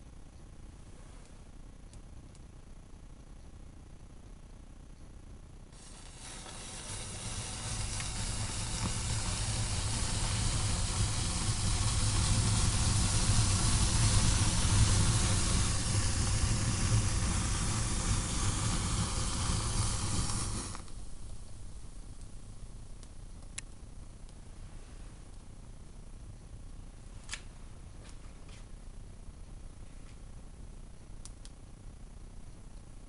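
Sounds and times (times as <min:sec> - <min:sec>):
matches igniting with hissing flame: 0:05.8 - 0:21.6.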